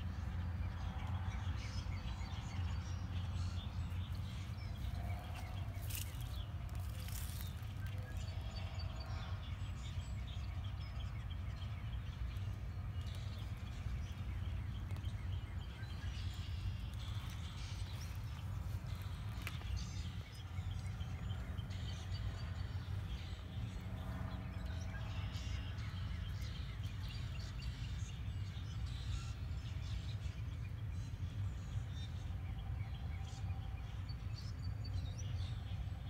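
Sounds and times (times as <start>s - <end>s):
low machine hum: 0.0s - 36.0s.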